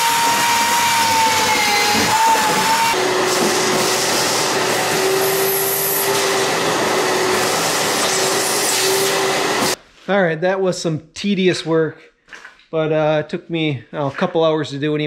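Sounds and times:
power drill whine: 0:00.0 - 0:09.8
shop vacuum running: 0:00.0 - 0:09.8.

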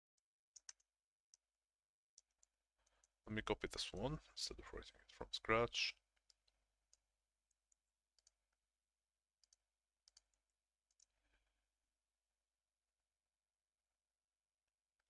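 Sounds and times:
computer keyboard clicks: 0:09.4 - 0:11.1.

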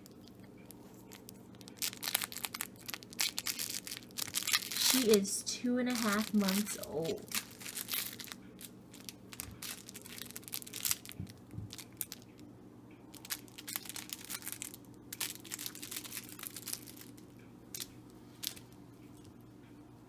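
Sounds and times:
puppy chewing plush toys: 0:00.0 - 0:12.4
crinkling and rustling: 0:00.0 - 0:12.5, 0:13.1 - 0:19.3
steady low hum: 0:00.0 - 0:20.0.

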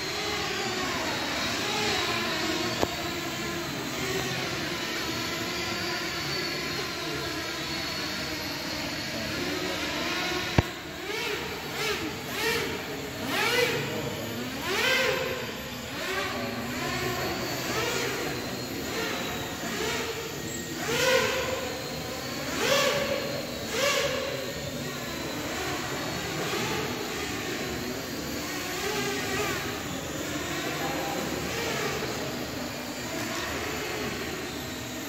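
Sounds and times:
drone propellers whirring: 0:00.0 - 0:35.0.

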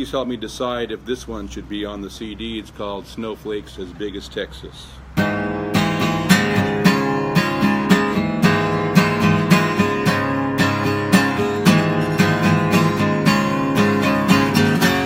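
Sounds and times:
acoustic guitar strumming: 0:05.1 - 0:15.0.

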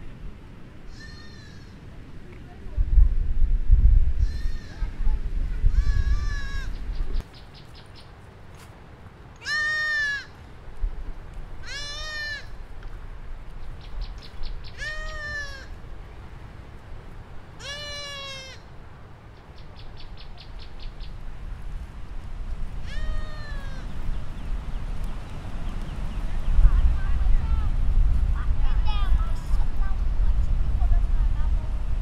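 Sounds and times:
goat bleating: 0:00.9 - 0:01.8, 0:04.2 - 0:04.9, 0:05.7 - 0:06.8, 0:09.4 - 0:10.3, 0:11.6 - 0:12.6, 0:14.8 - 0:15.7, 0:17.6 - 0:18.6, 0:22.9 - 0:23.9.

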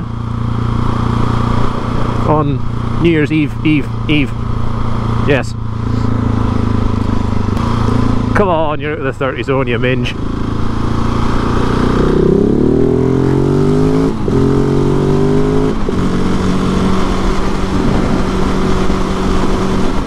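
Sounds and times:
motorcycle engine accelerating: 0:00.0 - 0:20.0
wind rushing over camera: 0:15.6 - 0:20.0.

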